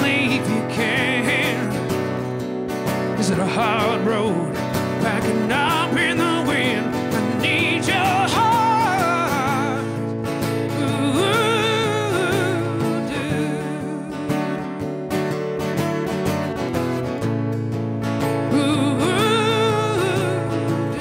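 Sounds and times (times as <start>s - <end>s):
man singing with vibrato: 0.0s - 1.9s, 3.1s - 14.8s, 18.4s - 21.0s
acoustic guitar strumming: 0.0s - 21.0s.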